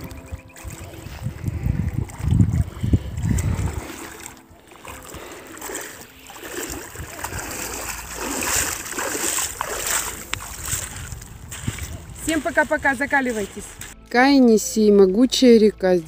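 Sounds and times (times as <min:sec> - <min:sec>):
low rumbling: 0:00.0 - 0:06.0
wading splashes in river water: 0:00.0 - 0:14.0.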